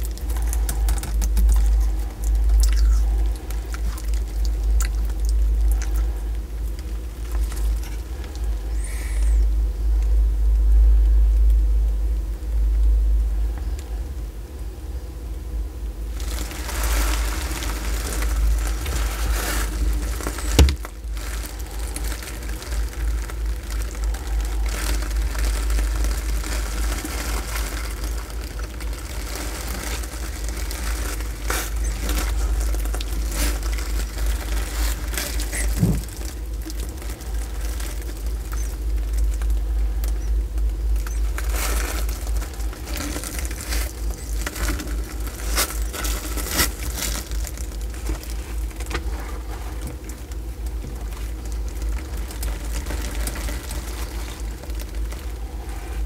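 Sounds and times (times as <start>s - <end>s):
tortoise chewing wet bites: 0.0s - 9.6s, 16.1s - 56.0s
steady low rumble: 0.0s - 56.0s.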